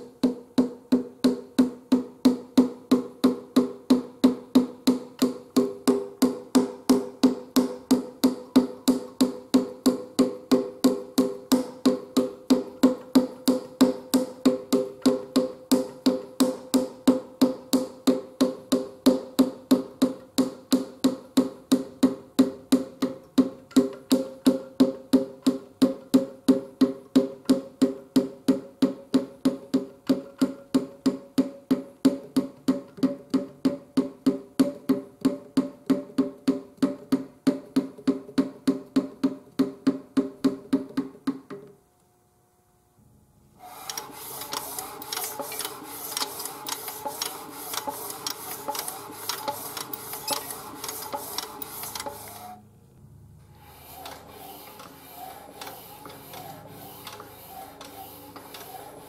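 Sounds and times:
brush scrubbing inside metal cylinder: 43.9s - 52.6s, 53.5s - 59.0s.

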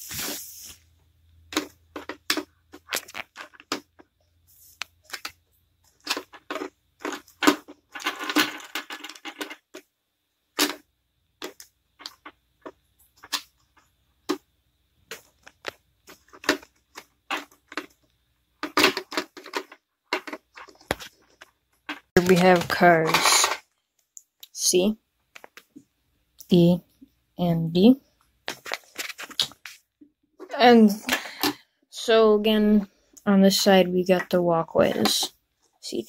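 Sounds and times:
rustling: 0.0s - 9.9s, 28.4s - 30.6s
plastic model cars clicking: 4.8s - 9.9s.

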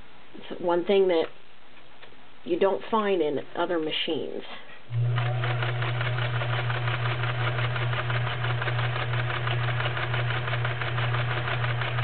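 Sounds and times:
sewing machine stitching: 4.9s - 12.0s.

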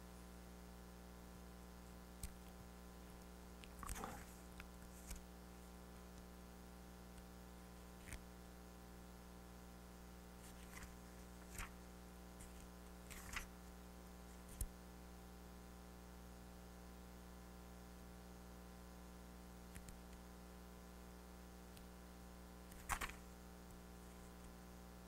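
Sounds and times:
low electrical hum: 0.0s - 25.0s
book page turning: 3.7s - 5.2s, 10.4s - 11.8s, 12.4s - 13.5s.

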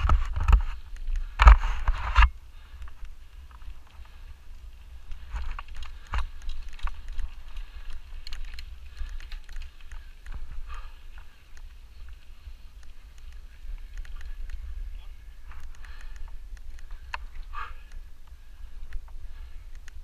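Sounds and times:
low rumble of tyres on trail: 0.0s - 20.0s
bike chain and frame clattering: 3.2s - 17.7s.

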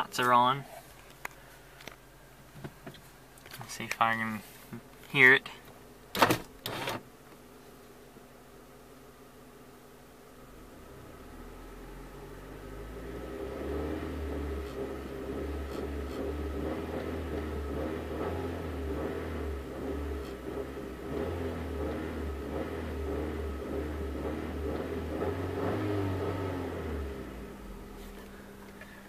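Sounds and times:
car engine revving: 10.6s - 28.7s.

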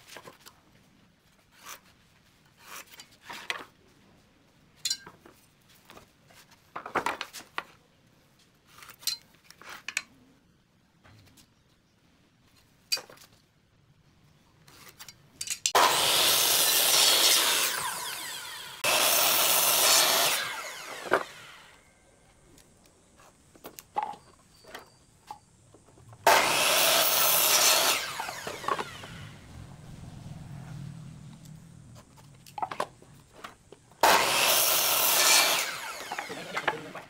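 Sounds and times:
miter saw cutting wood: 15.8s - 21.9s, 26.2s - 29.7s, 34.0s - 37.0s
board handling clicks and knocks: 32.0s - 34.0s.

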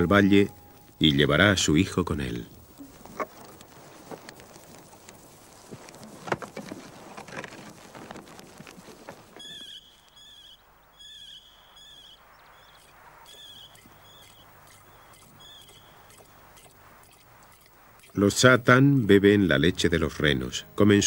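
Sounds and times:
footsteps on rough ground: 2.9s - 10.2s
high whistled call: 9.4s - 16.3s.

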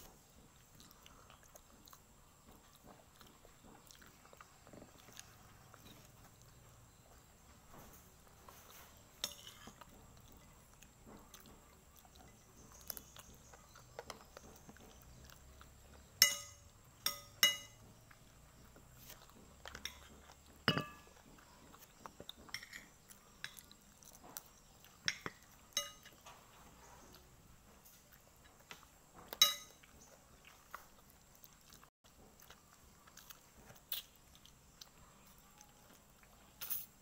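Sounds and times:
metal spoon clinking on plate: 9.2s - 9.8s, 16.2s - 17.8s, 19.8s - 21.2s, 25.1s - 26.2s, 29.4s - 29.8s.

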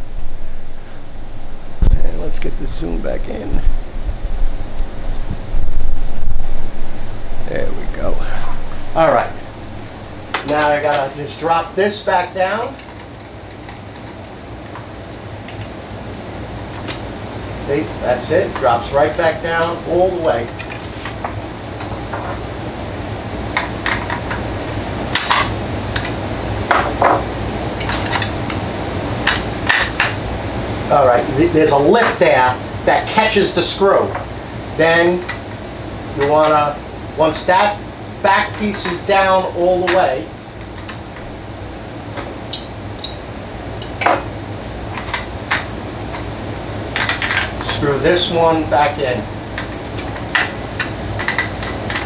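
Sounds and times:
low hum: 0.0s - 11.8s
steady low hum: 0.0s - 52.0s.

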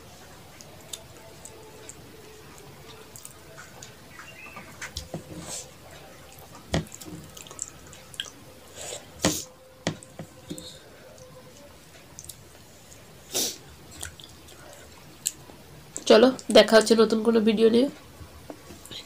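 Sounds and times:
wet mouth eating sounds: 6.3s - 8.4s, 12.2s - 15.5s.

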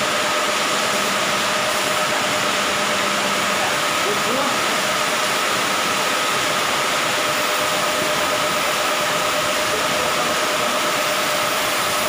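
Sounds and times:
air compressor running: 0.0s - 12.0s.

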